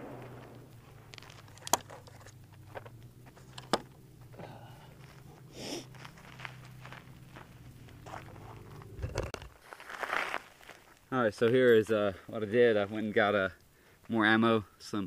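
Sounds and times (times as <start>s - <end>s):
rifle shots: 0.0s - 0.8s
faint rustle: 0.0s - 15.0s.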